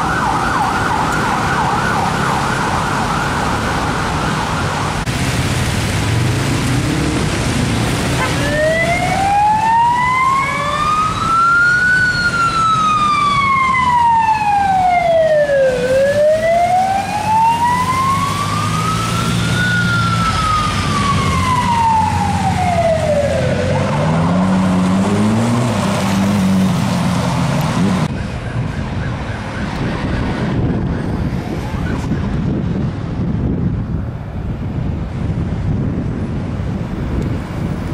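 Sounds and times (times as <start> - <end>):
police siren wailing: 0.0 - 5.1, 8.0 - 32.5
city traffic: 0.0 - 37.9
wind buffeting microphone: 27.7 - 37.9.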